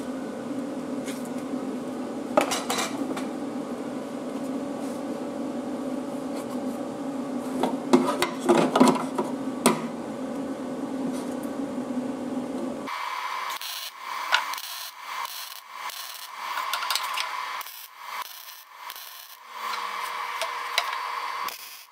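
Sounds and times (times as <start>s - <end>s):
steady hum: 0.0s - 21.9s
welder arc crackling: 12.9s - 21.9s.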